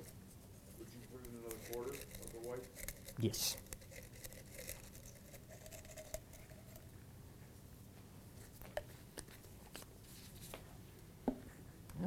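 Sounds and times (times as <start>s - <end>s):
small items clicking and tapping: 1.0s - 6.6s.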